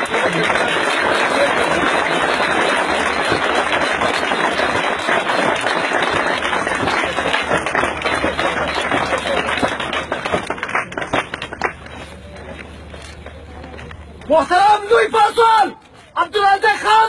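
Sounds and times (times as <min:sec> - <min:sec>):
crowd applauding: 0:00.0 - 0:12.7.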